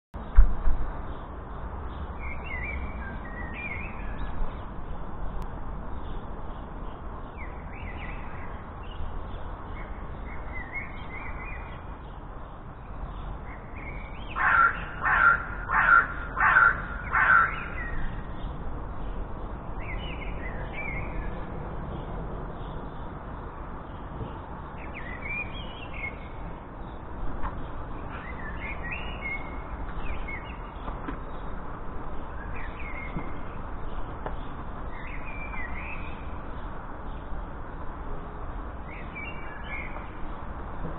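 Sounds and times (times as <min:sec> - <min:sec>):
small birds chirping faintly: 0:00.2 - 0:40.9
corvid calling: 0:14.4 - 0:18.0.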